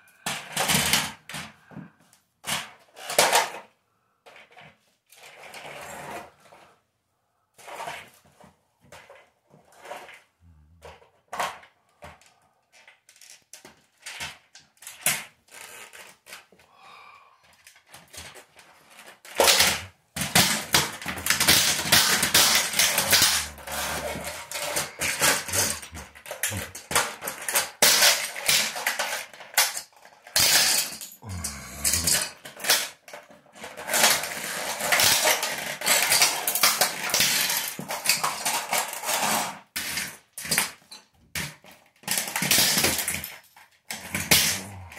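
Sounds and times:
plastic pieces clattering on tile: 0:00.1 - 0:06.7, 0:07.6 - 0:16.6, 0:17.4 - 0:44.9
plastic toy crunching underfoot: 0:18.8 - 0:27.9.

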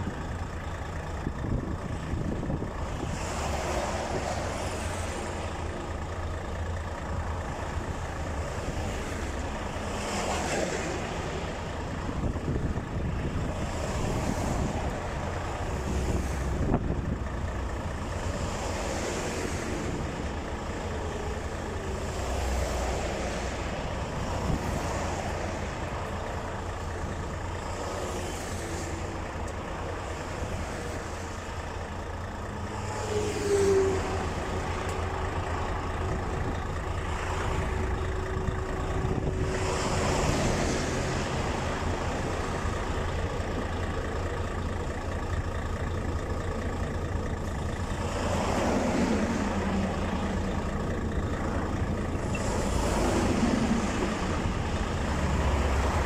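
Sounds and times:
highway traffic passing: 0:00.0 - 0:56.0.

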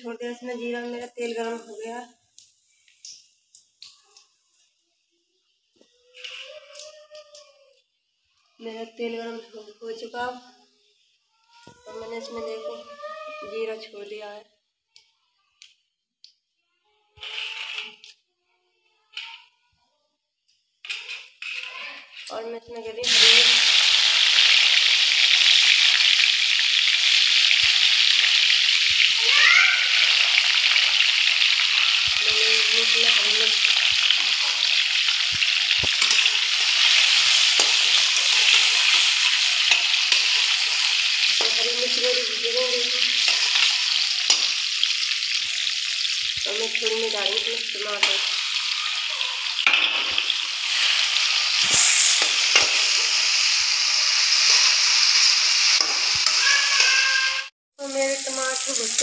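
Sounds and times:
spices sizzling in hot oil: 0:01.2 - 0:06.9, 0:20.5 - 0:59.0.

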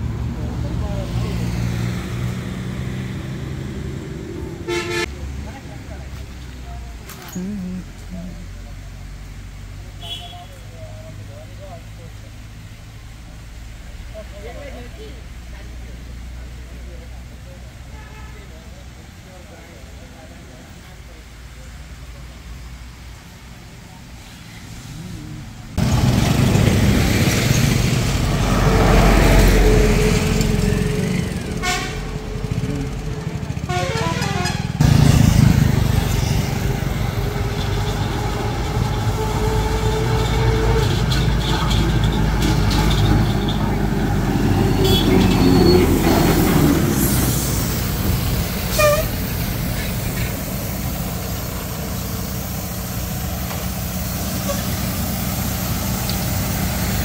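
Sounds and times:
motorcycles passing: 0:00.0 - 0:08.8, 0:24.9 - 0:57.0
heavy diesel vehicles passing: 0:00.0 - 0:57.0
vehicle horn tooting: 0:04.7 - 0:05.1, 0:10.0 - 0:10.6, 0:31.6 - 0:32.1, 0:33.6 - 0:34.8, 0:44.7 - 0:45.8, 0:48.7 - 0:49.2.

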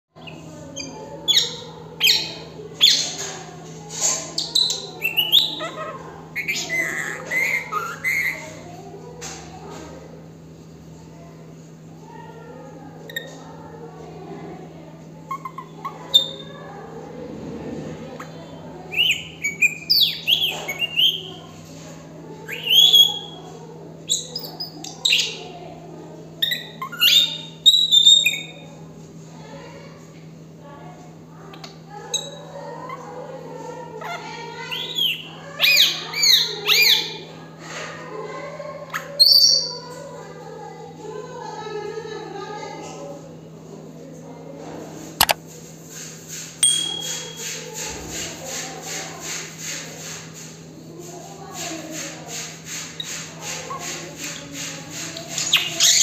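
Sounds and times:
parakeet chattering and warbling: 0:00.2 - 0:08.8, 0:15.2 - 0:16.6, 0:18.2 - 0:21.5, 0:22.5 - 0:23.5, 0:26.4 - 0:28.6, 0:34.0 - 0:37.2, 0:46.6 - 0:47.7, 0:52.9 - 0:56.0
parakeet chirping and whistling: 0:46.6 - 0:47.4.

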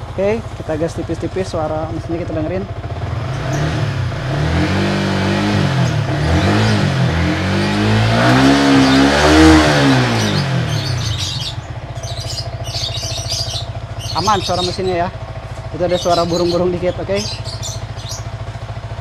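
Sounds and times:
motorcycle engine revving: 0:00.0 - 0:19.0
birds chirping faintly: 0:07.6 - 0:18.7.

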